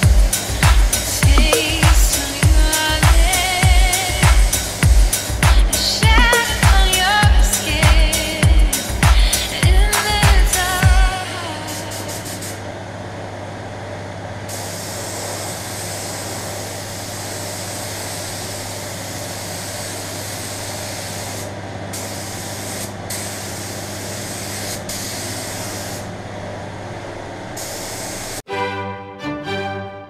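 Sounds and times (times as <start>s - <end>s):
paint spray gun hissing: 0.0s - 10.9s, 14.5s - 26.1s, 27.6s - 28.4s
steady low hum: 0.0s - 28.1s.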